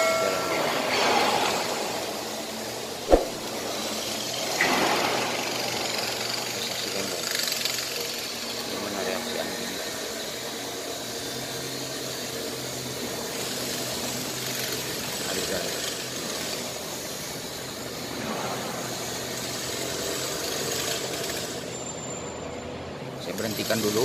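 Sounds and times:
sharp click: 3.1 - 3.5.

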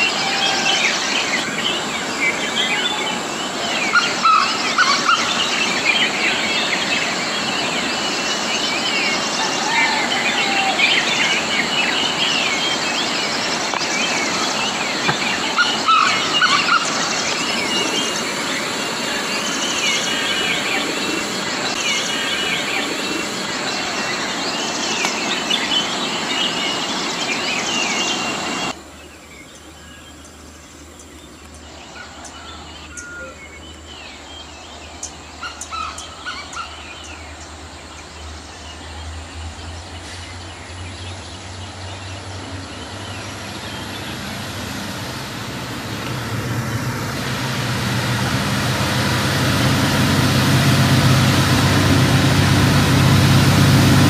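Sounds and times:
birds chirping: 0.0 - 54.0
rush of falling water: 0.0 - 54.0
diesel train rumble: 39.0 - 54.0.

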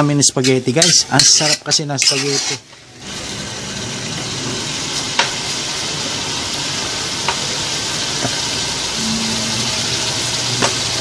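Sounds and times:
meat and mushrooms sizzling: 3.1 - 11.0.

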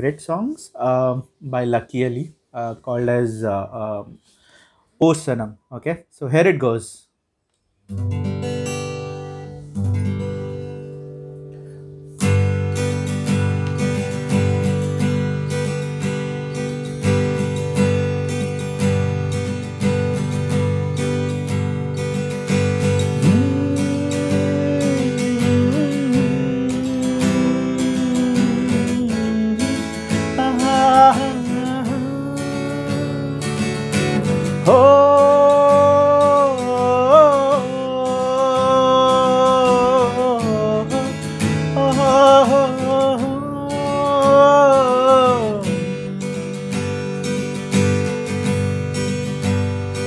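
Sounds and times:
acoustic guitar strumming: 7.8 - 50.0
man humming: 23.0 - 46.0.

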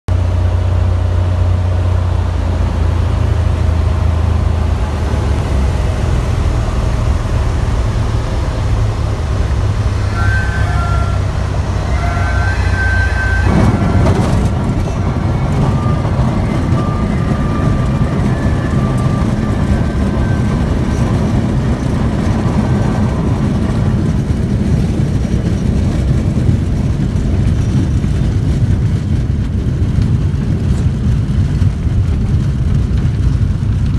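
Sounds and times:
airplane engine running: 0.1 - 33.9
wheels rolling on dirt: 3.0 - 33.9.

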